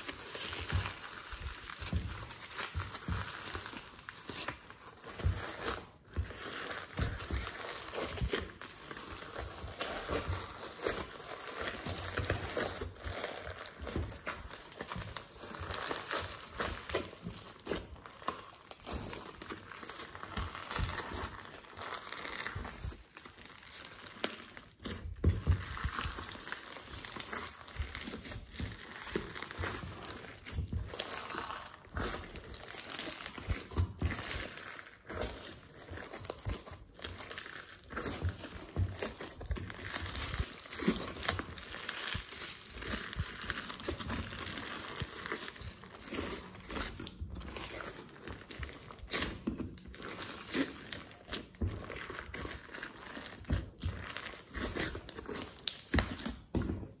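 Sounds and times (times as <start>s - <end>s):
hands squishing slime: 0.0s - 57.0s.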